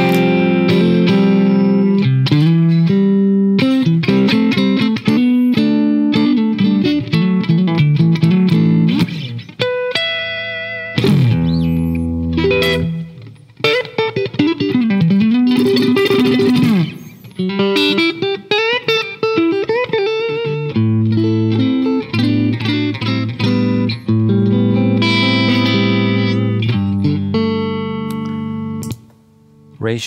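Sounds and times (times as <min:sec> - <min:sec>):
electric guitar playing: 0:00.0 - 0:29.8.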